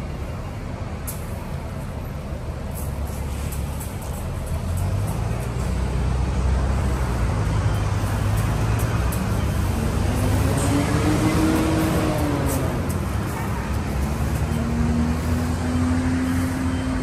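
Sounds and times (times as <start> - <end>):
traffic engine rumble: 0.0 - 17.0
vehicle engine revving: 4.7 - 17.0.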